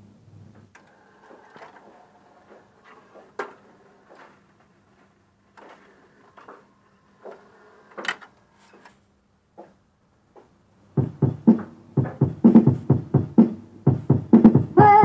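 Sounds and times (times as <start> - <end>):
faint motor hum: 0.0 - 9.1
mechanical clicks and clacks: 0.6 - 8.4.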